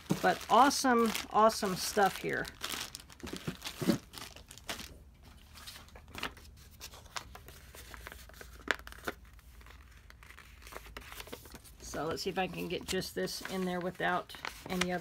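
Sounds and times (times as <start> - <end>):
plastic bag crinkling: 0.0 - 5.0.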